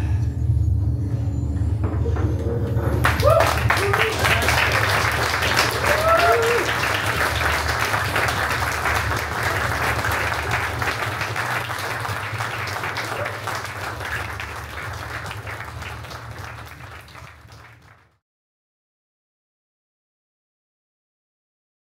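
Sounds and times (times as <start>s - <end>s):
audience applauding: 2.7s - 18.2s.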